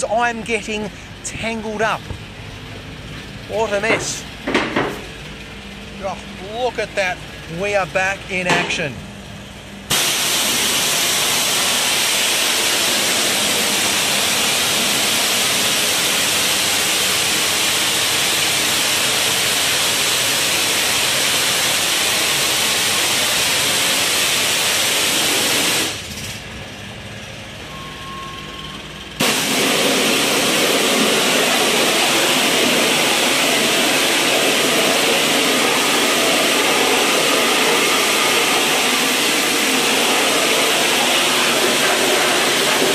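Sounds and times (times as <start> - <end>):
pressure washer spraying concrete: 9.9 - 26.0, 29.2 - 42.9.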